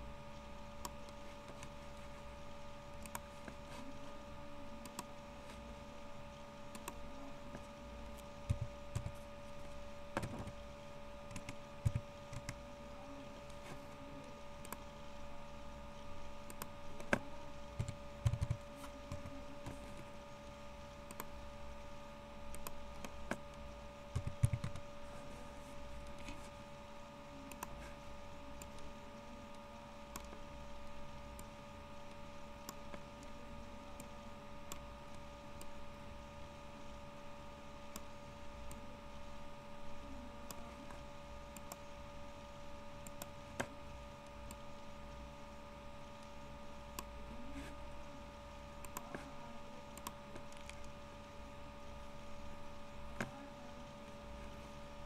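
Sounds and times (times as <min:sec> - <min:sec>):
steady hum: 0:00.0 - 0:55.0
keyboard typing: 0:00.6 - 0:05.6, 0:06.3 - 0:13.9, 0:14.6 - 0:15.0, 0:16.0 - 0:21.4, 0:22.4 - 0:26.5, 0:27.4 - 0:35.8, 0:48.7 - 0:51.0
mouse clicks: 0:03.0 - 0:03.9, 0:06.7 - 0:09.2, 0:48.8 - 0:49.3, 0:50.0 - 0:51.0.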